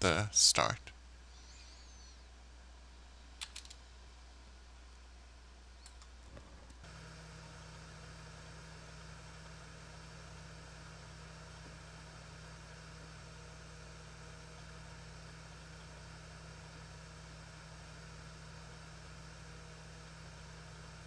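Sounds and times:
low electrical hum: 0.0s - 21.0s
faint clicks: 3.4s - 3.8s, 5.8s - 6.8s.

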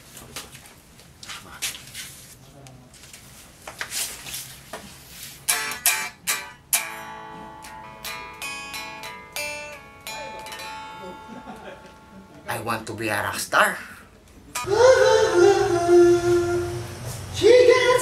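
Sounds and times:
rustles and light knocks: 0.0s - 5.5s
electric guitar playing: 5.5s - 12.5s, 14.5s - 18.0s.

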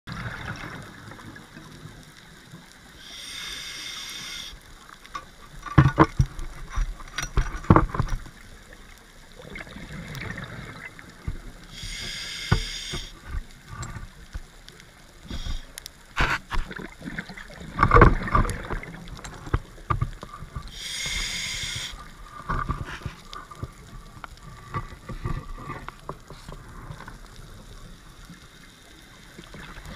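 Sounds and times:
regulator hissing inhalations: 3.0s - 4.6s, 11.7s - 13.2s, 15.2s - 15.8s, 20.7s - 22.1s.

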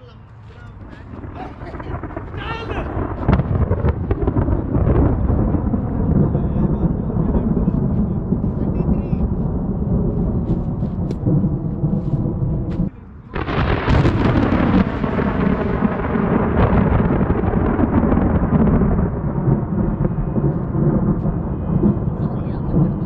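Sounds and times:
thunder rumbling and clapping: 0.6s - 23.0s.

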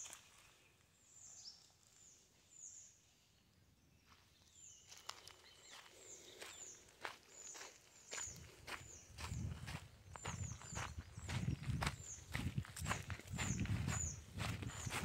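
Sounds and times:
footsteps crunching on dry leaves: 0.0s - 0.6s, 4.9s - 15.0s.

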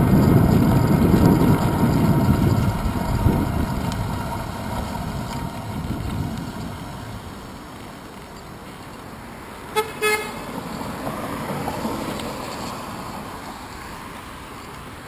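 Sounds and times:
wind buffeting microphone: 0.0s - 8.0s.

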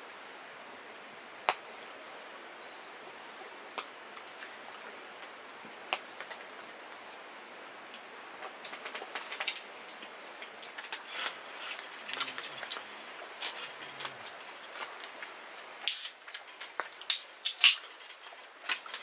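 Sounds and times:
rain pattering on a tent: 0.0s - 19.0s
sharp clicks and fizzes: 7.9s - 19.0s
drink can opening with a hiss: 15.8s - 16.3s, 17.0s - 17.9s.

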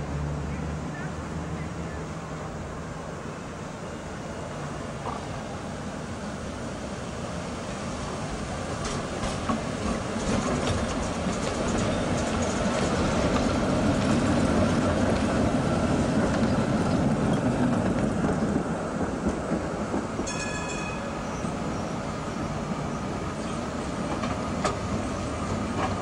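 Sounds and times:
tram wheels and motors rumbling: 0.0s - 26.0s
high-pitched ringing tone: 20.3s - 21.6s.

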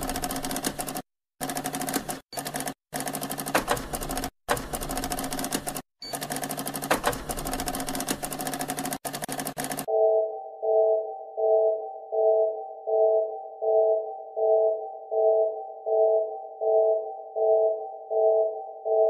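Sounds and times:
typewriter keystrokes clattering: 0.0s - 9.9s.

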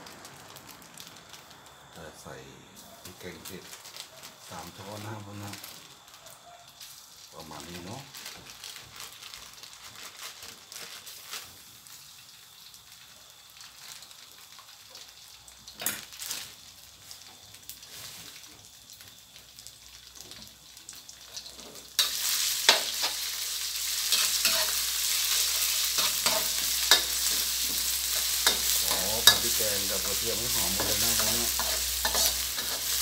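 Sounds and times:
paste sizzling in oil: 10.6s - 33.0s
spatula scraping wok: 21.4s - 33.0s.

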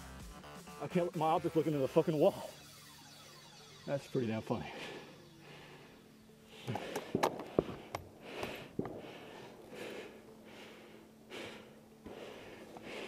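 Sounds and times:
person breathing hard: 4.6s - 13.0s
sharp clicks and knocks: 6.7s - 9.0s.

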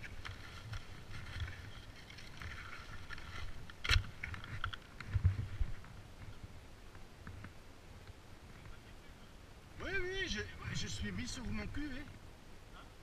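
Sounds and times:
skis scraping on rock and snow: 0.0s - 3.6s
wind rumble on microphone: 0.0s - 9.9s.

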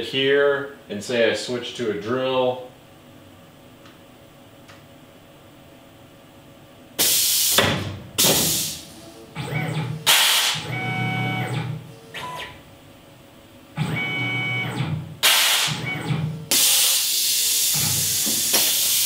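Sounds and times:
compressed air hiss: 7.0s - 7.6s, 8.2s - 8.9s, 10.1s - 10.6s, 15.2s - 15.8s, 16.5s - 19.0s
motors whining: 8.9s - 12.4s, 13.8s - 16.7s.

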